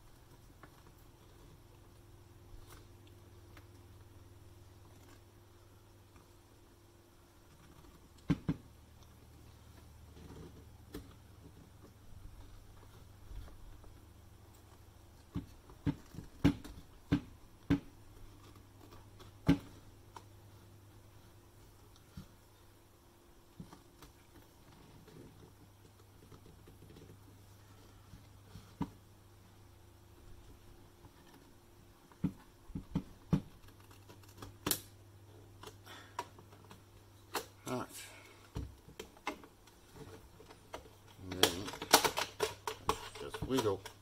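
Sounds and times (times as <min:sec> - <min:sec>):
plastic clicks and knocks: 0:38.5 - 0:44.0.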